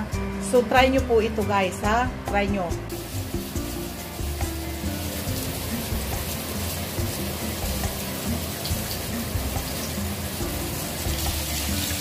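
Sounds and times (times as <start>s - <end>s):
eggplant frying in hot oil: 2.9s - 12.0s.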